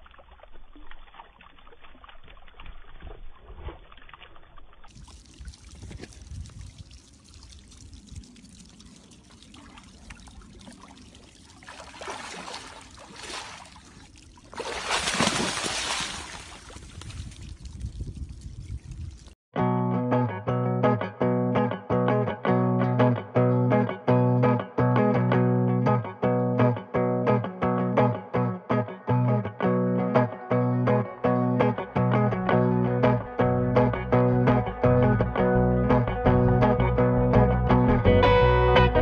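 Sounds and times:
water sloshing and splashing: 0:00.0 - 0:19.4.

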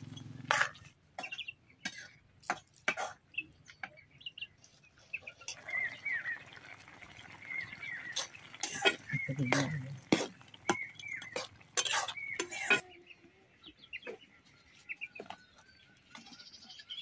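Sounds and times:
small birds chirping: 0:00.0 - 0:17.0
metal spatula scraping a wok: 0:11.3 - 0:12.8.

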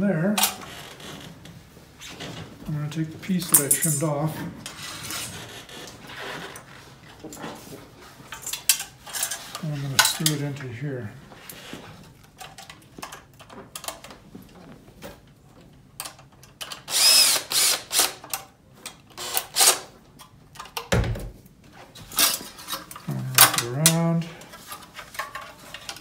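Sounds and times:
cordless driver motor running: 0:16.9 - 0:18.1.

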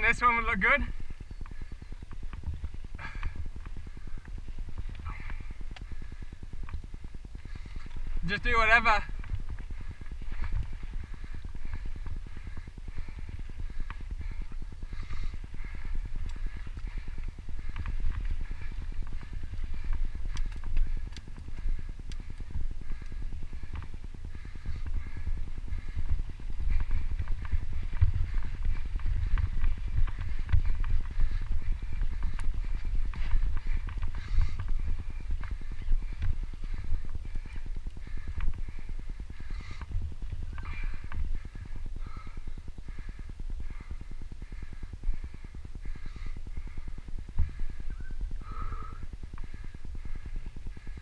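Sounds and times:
bike rattling and knocking: 0:00.0 - 0:51.0
bike tyres running over dirt: 0:00.0 - 0:51.0
wind rumbling on microphone: 0:00.0 - 0:51.0.

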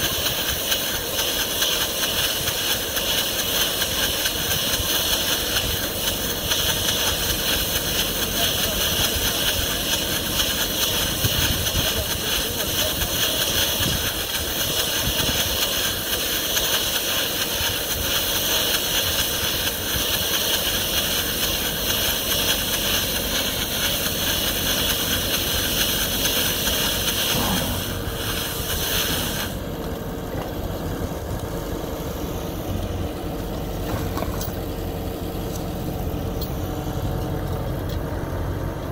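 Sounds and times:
tractor engine running: 0:00.0 - 0:38.9
high hiss of bale wrapping: 0:14.7 - 0:29.7.

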